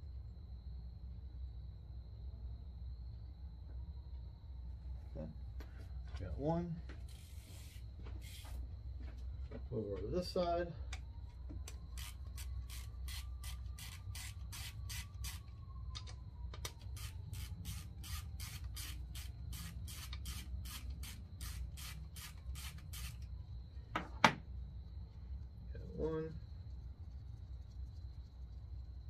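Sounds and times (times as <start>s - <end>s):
ratchet strokes: 7.1s - 8.6s, 11.9s - 15.4s, 16.9s - 23.3s.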